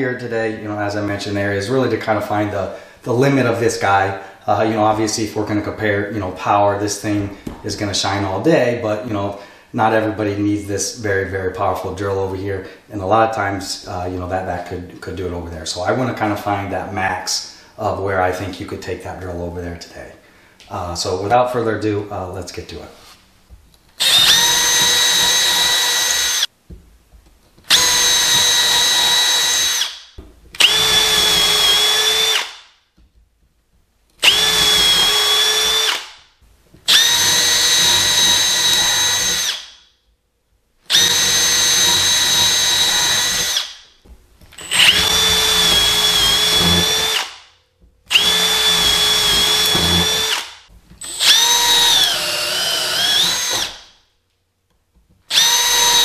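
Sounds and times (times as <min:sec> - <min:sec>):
cordless drill motor whine: 0:24.0 - 0:26.5, 0:27.7 - 0:30.0, 0:30.6 - 0:32.5, 0:34.2 - 0:36.0, 0:36.9 - 0:39.6, 0:40.9 - 0:43.7, 0:44.6 - 0:47.2, 0:48.1 - 0:50.4, 0:51.0 - 0:53.8, 0:55.3 - 0:56.0.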